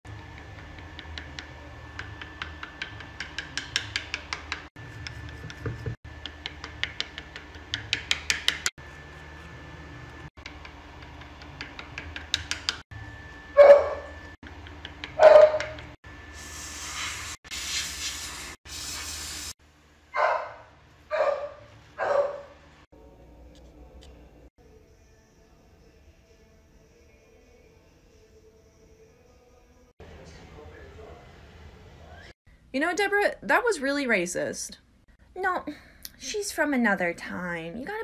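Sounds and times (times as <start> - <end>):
dog barking: 13.6 - 14.2, 15.2 - 15.8, 20.2 - 22.6
short bursts of hiss: 16.4 - 19.5.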